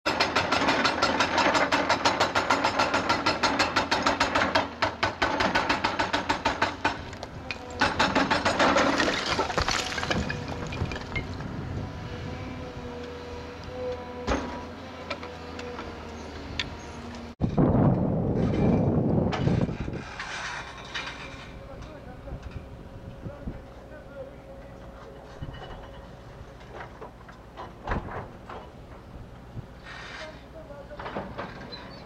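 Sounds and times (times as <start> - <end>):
excavator clattering rattle: 0.1 - 11.6, 24.5 - 29.4, 30.2 - 32.0
engine running: 9.9 - 17.4.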